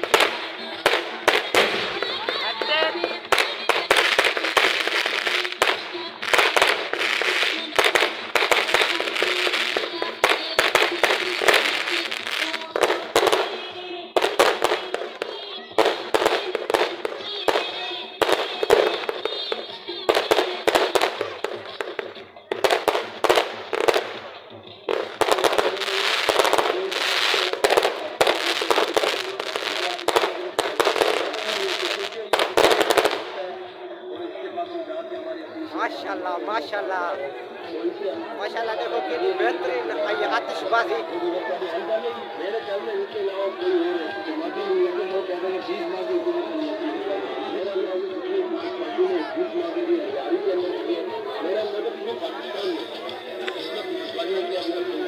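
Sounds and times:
fireworks bangs and crackling: 0.0 - 33.7.

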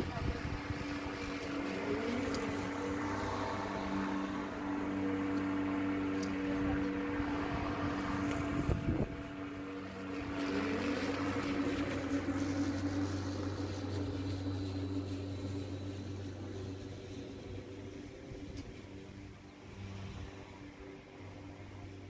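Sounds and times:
lawn mower running: 0.0 - 22.0.

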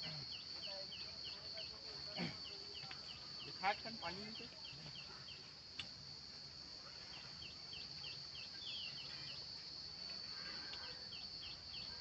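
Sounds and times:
bird chirping: 7.1 - 9.6, 10.8 - 12.0.

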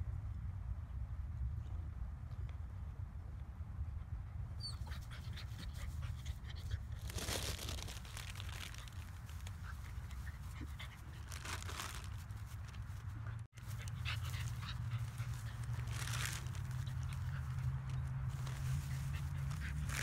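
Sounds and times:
steady low rumble: 0.0 - 20.0
dog panting: 13.6 - 20.0.

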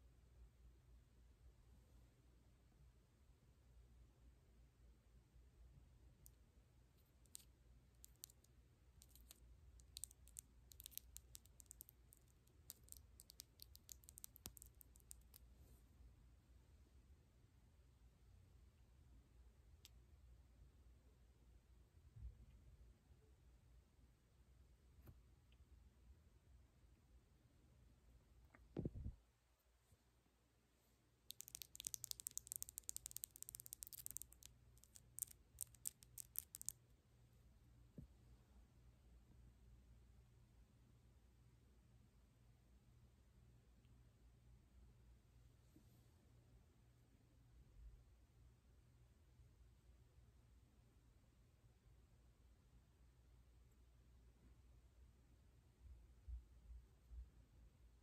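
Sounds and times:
nails tapping and clicking: 7.3 - 15.4, 31.3 - 36.8
acrylic nails tapping: 31.3 - 36.7.

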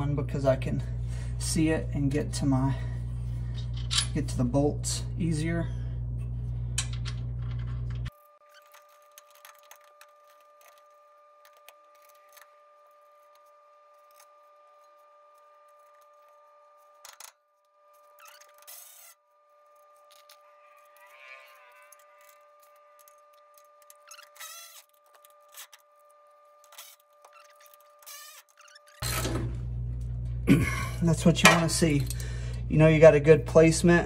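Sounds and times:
faint steady hum: 0.0 - 21.1, 21.8 - 34.0.

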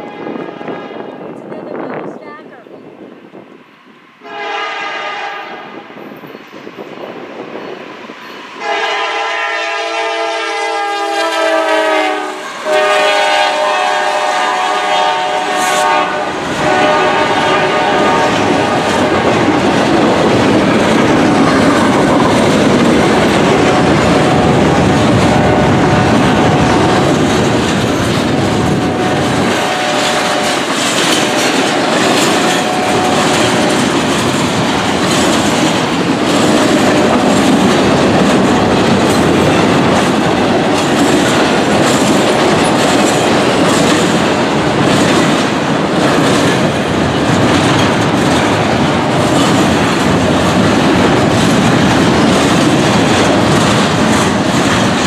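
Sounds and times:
train horn blasts: 0.0 - 1.1, 4.2 - 5.8, 8.6 - 19.4, 23.6 - 27.1, 28.5 - 33.8
train rumbling past: 0.0 - 55.0.

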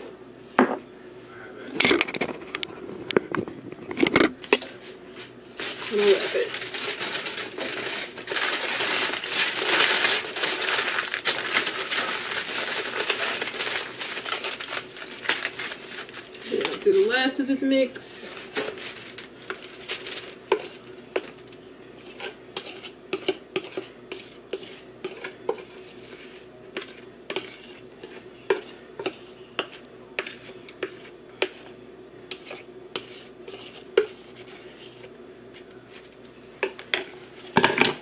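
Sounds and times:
utensil scraping plastic bowl: 22.0 - 35.1.

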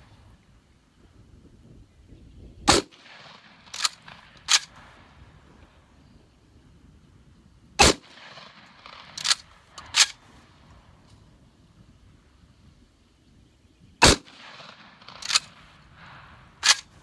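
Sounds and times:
shotgun shots: 2.7 - 4.9, 7.8 - 10.2, 14.0 - 17.0
metallic bolt clacks: 9.2 - 10.2.

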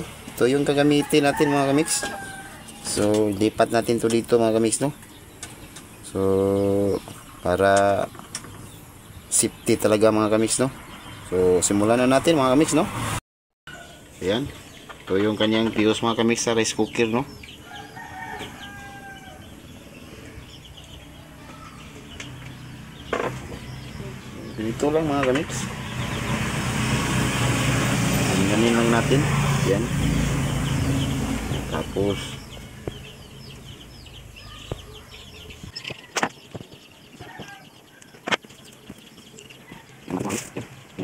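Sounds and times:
chickens clucking: 30.4 - 41.0.

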